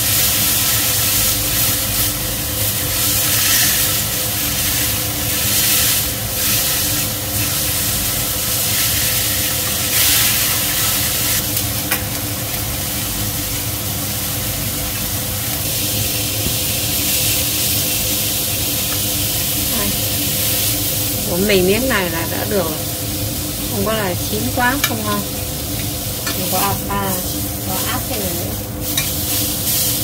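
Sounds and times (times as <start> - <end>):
range hood fan hum: 0.0 - 30.0
steaks sizzling in frying pan: 0.0 - 30.0
metal tongs clicking on pan: 24.8 - 26.4.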